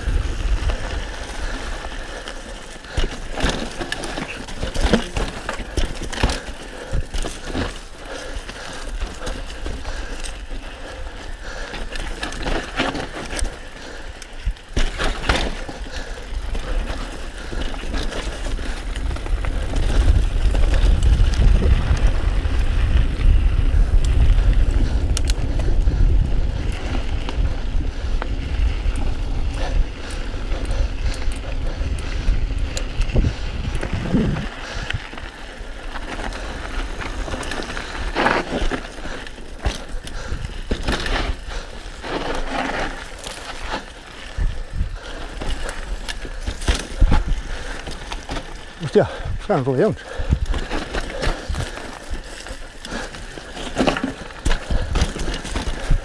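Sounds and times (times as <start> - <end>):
wind rumble on microphone: 0.0 - 2.1, 17.4 - 39.1, 44.0 - 48.1, 49.2 - 53.1
bike frame rattling: 0.0 - 56.0
tyres crunching on loose ground: 0.0 - 56.0.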